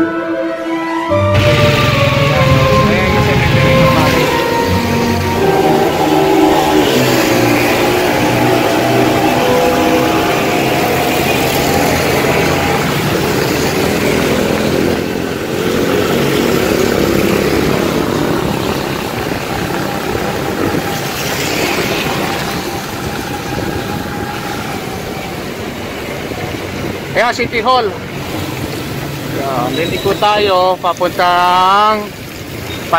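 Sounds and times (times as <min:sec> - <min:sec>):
wind and road noise: 0:01.1 - 0:32.9
motor scooter engine running: 0:01.3 - 0:24.2.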